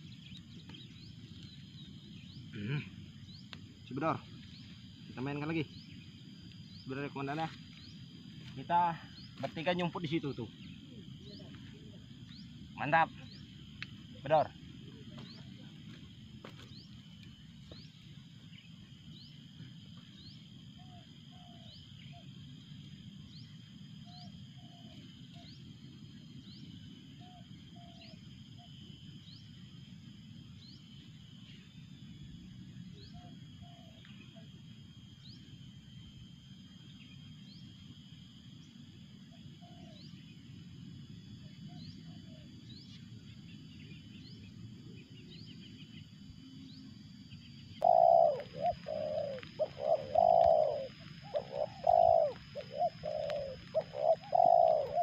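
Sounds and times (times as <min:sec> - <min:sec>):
high insect drone: 0:00.0 - 0:55.0
dove cooing: 0:20.8 - 0:22.3, 0:24.0 - 0:25.5, 0:27.2 - 0:28.7, 0:33.1 - 0:34.5, 0:39.3 - 0:40.2, 0:47.8 - 0:55.0.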